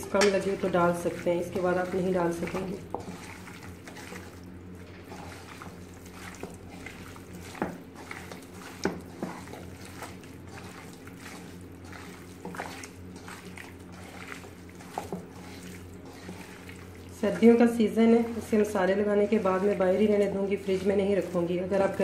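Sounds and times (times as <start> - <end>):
steady low hum: 0.0 - 22.0
wet squelching of hands in marinade: 0.3 - 22.0.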